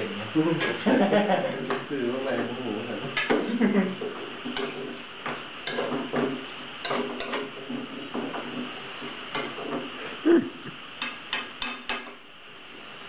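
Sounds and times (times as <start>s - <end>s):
utensil knocking on pan: 3.2s - 8.7s.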